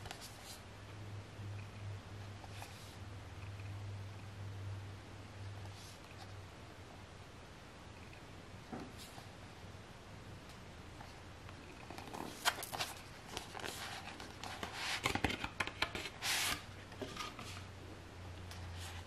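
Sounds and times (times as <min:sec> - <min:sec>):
cardboard packaging being handled: 0:12.0 - 0:17.6.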